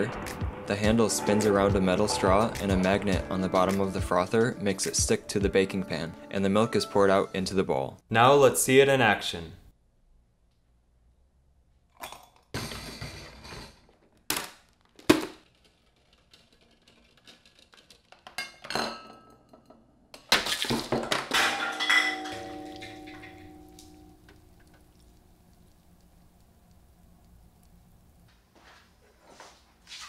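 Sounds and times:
objects knocking and clattering: 12.1 - 25.1.

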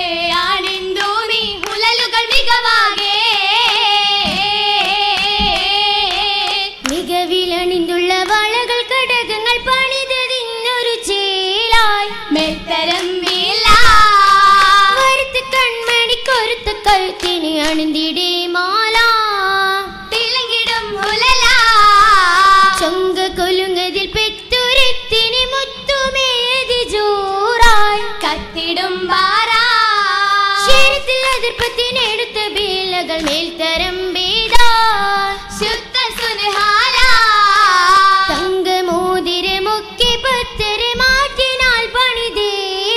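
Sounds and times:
girls singing in unison: 0.0 - 42.9
hand claps: 0.1 - 7.2, 8.2 - 9.0, 11.8 - 18.2, 20.2 - 23.0, 27.6 - 28.6, 30.6 - 38.9.

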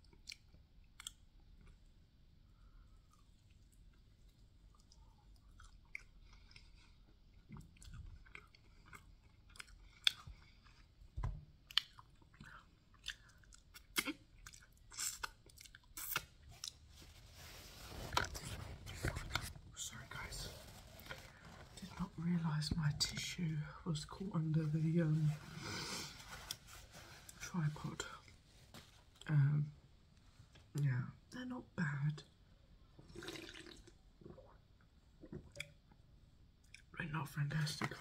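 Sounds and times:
chewing with wet smacks: 0.0 - 1.9, 3.1 - 16.9, 35.2 - 35.9.

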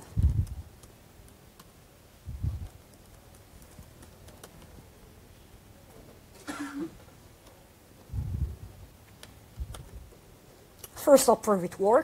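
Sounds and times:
typing on laptop keyboard: 0.0 - 1.9, 2.6 - 5.1.

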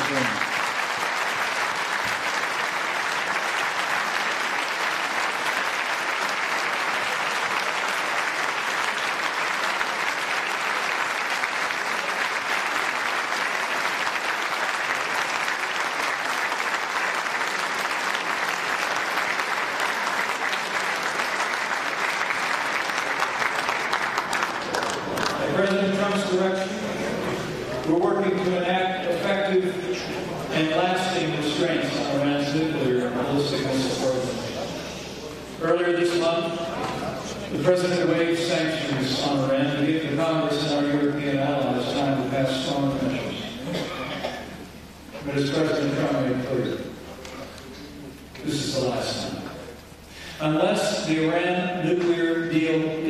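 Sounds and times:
large audience applauding: 0.0 - 28.5.

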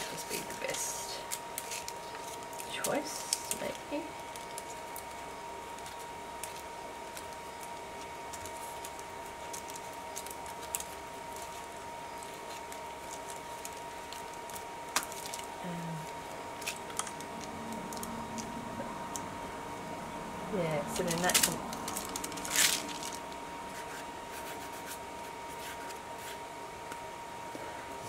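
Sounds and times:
paper rustling under hands: 0.0 - 19.2, 20.9 - 26.4
thin high whine: 15.6 - 26.6.

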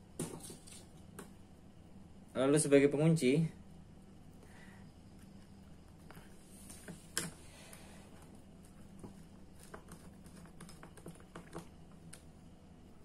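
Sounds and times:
hands clicking and tapping wire: 6.1 - 12.3.

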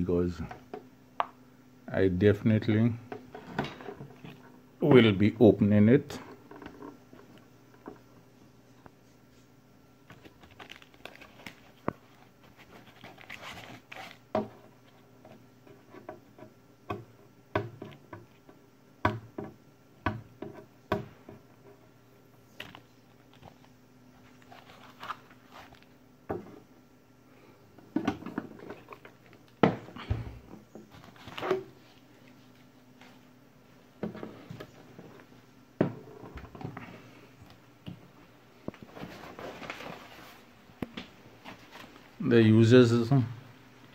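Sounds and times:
foam packing rustling and scraping: 10.1 - 15.0, 22.7 - 26.0, 30.9 - 32.6, 38.8 - 40.6.

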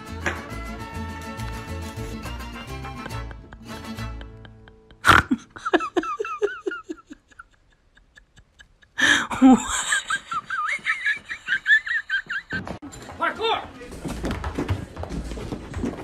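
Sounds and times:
person laughing: 2.9 - 12.8.

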